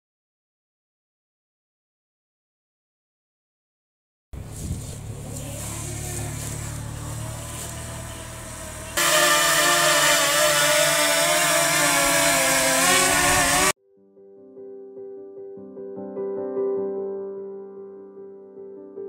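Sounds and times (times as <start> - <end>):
drone propeller whine: 5.0 - 13.8.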